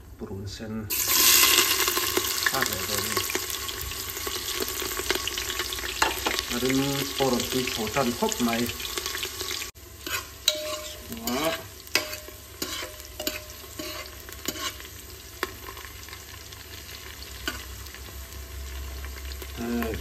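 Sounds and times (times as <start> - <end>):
onions sizzling in hot oil: 0.9 - 20.0
metal spoon scraping a pot: 10.0 - 15.5.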